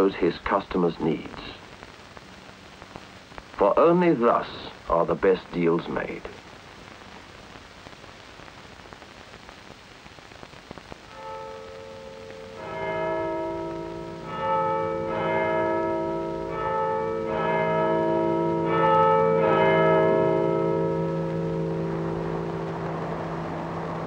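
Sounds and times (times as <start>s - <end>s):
film soundtrack hiss: 0.0s - 24.0s
church bells ringing: 11.1s - 24.0s
low hum: 20.9s - 24.0s.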